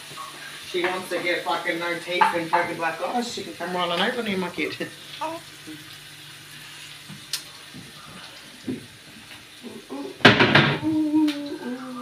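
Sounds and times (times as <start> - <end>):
tap water running into sink: 0.0 - 9.6.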